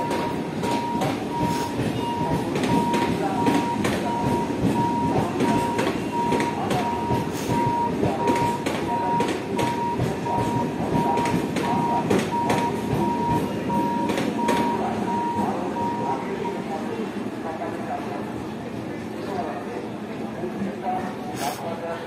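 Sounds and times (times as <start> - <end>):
train wheels clacking on rail joints: 0.0 - 14.8
high electronic warning beep: 0.0 - 16.6.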